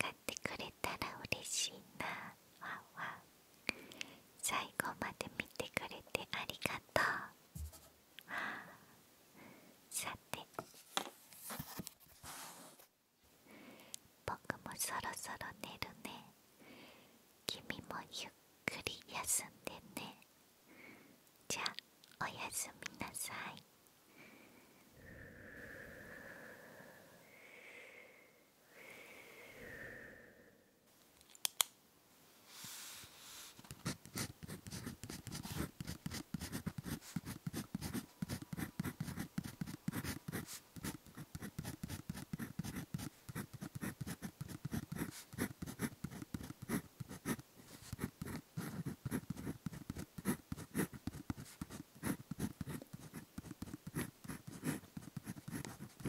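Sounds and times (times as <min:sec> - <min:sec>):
sharp click: 0:31.2 - 0:31.8
pen writing on paper: 0:33.7 - 0:56.0.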